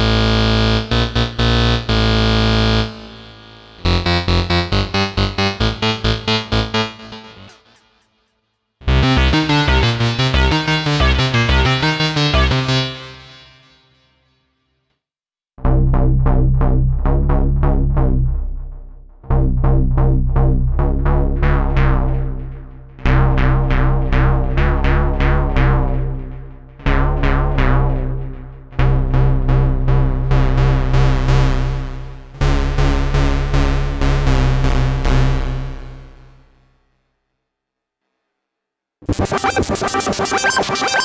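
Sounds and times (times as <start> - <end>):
deep synth bass: 8.8 - 13.3, 15.6 - 36.8, 39.0 - 41.0
plucked synth notes: 8.8 - 13.4, 39.0 - 41.0.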